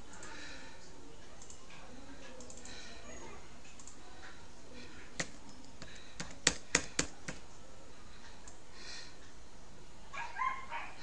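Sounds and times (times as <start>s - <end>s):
computer mouse clicks: 1.4s - 2.8s, 3.7s - 4.0s, 5.2s - 7.4s.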